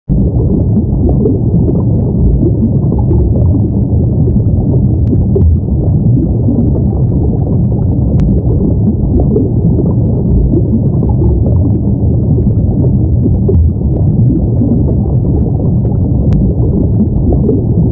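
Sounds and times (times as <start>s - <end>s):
underwater rumbling wash: 0.1s - 17.9s
faint ticks: 16.3s - 16.5s.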